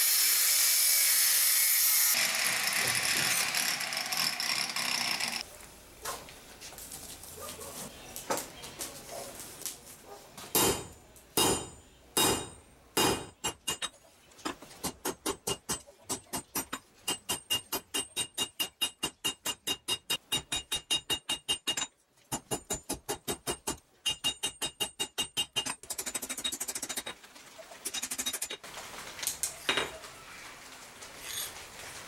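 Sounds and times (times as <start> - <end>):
hammer blows on anvil: 10.6 - 13.8.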